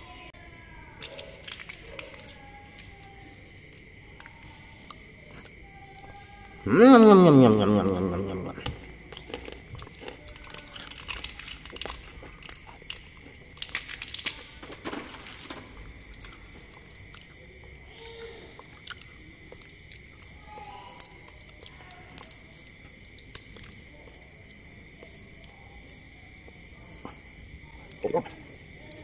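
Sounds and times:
plastic wrappers crinkling: 1.0 - 3.4, 9.2 - 16.9.

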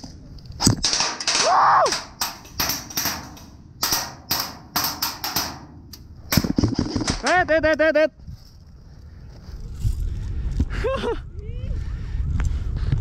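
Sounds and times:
bbs pinging on steel barricade: 0.6 - 7.4
airsoft shots cracking: 0.7 - 7.2.

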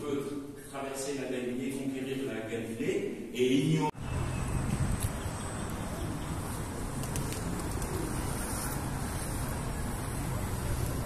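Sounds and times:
pigeons cooing: 7.1 - 8.9.

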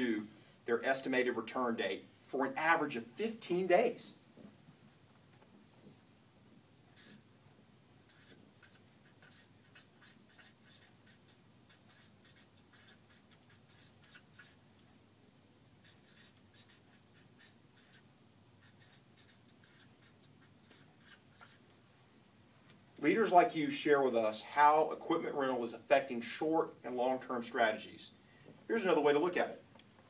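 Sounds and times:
writing strokes scratching: 6.9 - 7.2, 8.1 - 14.6, 15.8 - 21.6.

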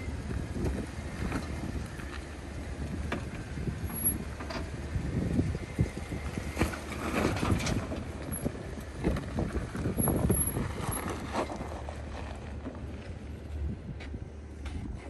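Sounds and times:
engine rumbling: 0.0 - 15.0
tires crunching over rock: 0.0 - 15.0
wind on microphone: 2.8 - 11.3.

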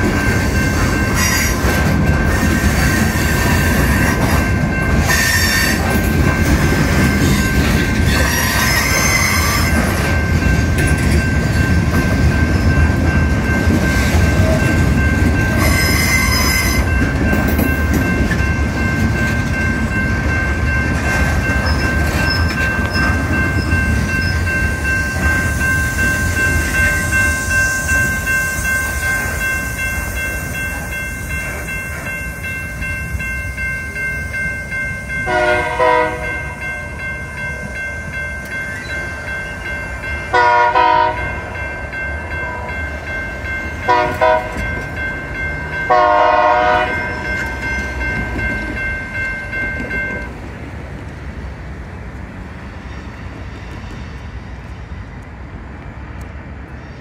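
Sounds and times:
crossing bell ringing: 0.0 - 50.7
train wheels rumbling on rails: 0.0 - 57.0
train air horn blasts: 35.3 - 36.3, 40.3 - 41.4, 43.9 - 44.6, 45.9 - 47.3.

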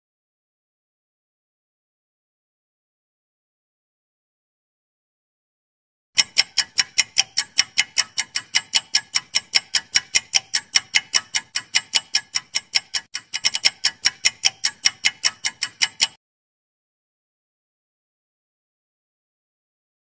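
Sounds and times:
fast clock ticks: 6.2 - 16.2.

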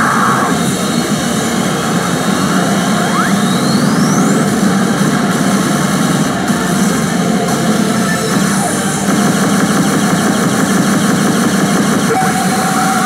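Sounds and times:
rising electronic sweep: 0.0 - 10.2
roar of balls and machines: 0.0 - 13.0.

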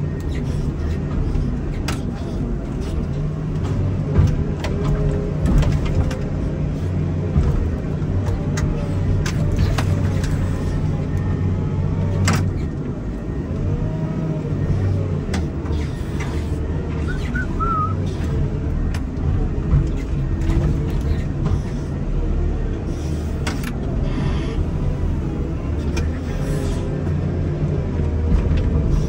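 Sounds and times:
diesel engine running: 0.0 - 29.0
warbling high chirp: 17.1 - 18.0.

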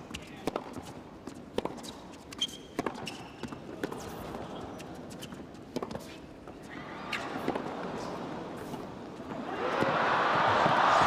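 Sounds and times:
shoes squeaking on court: 0.0 - 9.4
tennis racket hitting ball: 0.4 - 0.9.

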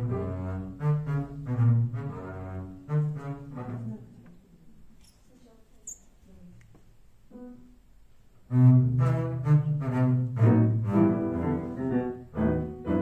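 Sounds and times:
bowed double bass: 0.0 - 4.3, 8.4 - 13.0.

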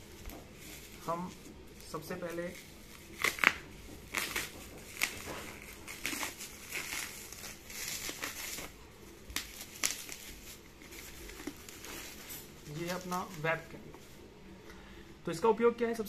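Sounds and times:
bubble wrap crinkling: 0.0 - 14.6.

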